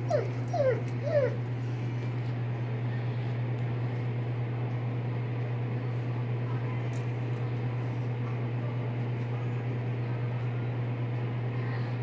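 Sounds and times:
dog whimpering: 0.0 - 1.5
steady low hum: 0.0 - 12.0.

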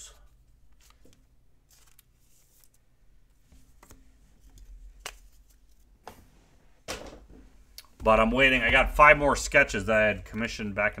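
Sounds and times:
cards rustling: 0.2 - 6.3.

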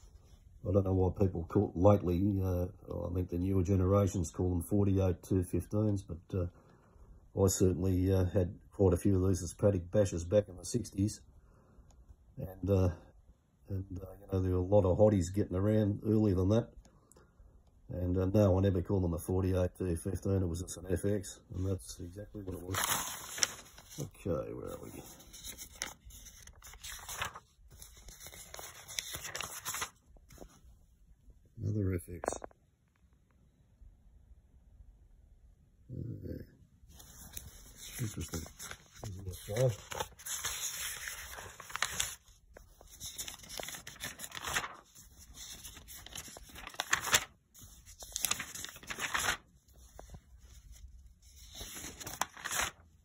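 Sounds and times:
magazine pages rustling: 21.6 - 30.6, 36.9 - 52.9.

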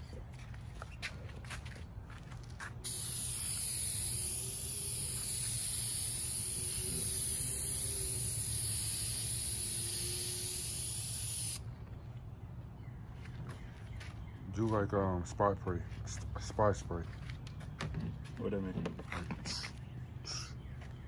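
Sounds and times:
spray paint can hissing: 2.8 - 11.6.

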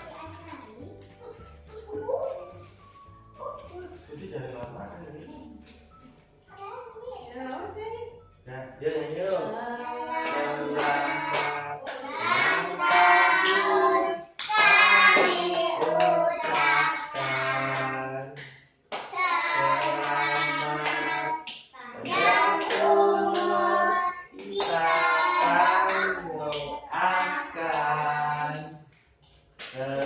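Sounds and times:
hand clapping: 0.0 - 6.3, 10.2 - 13.8, 14.4 - 23.8, 29.3 - 30.0
group singing together: 9.2 - 18.5, 19.1 - 28.8, 29.7 - 30.0.

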